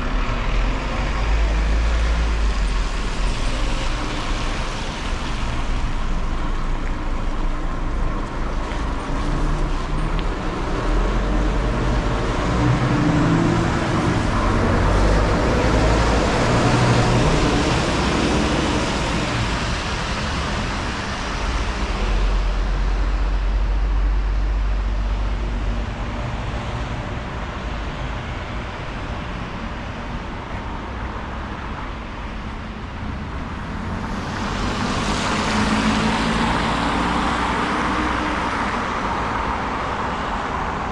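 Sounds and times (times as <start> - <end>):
motor vehicles passing: 32.8 - 40.9.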